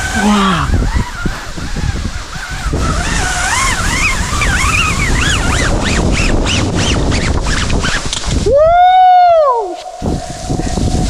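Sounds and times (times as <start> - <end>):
waterfall rushing: 8.4 - 11.0
high wavering squeal: 8.8 - 11.0.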